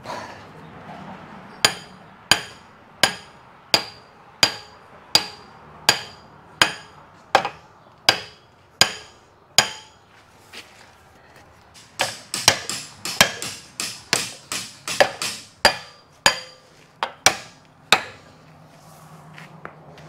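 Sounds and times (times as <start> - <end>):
hammer striking metal: 1.6 - 10.0, 11.8 - 18.2.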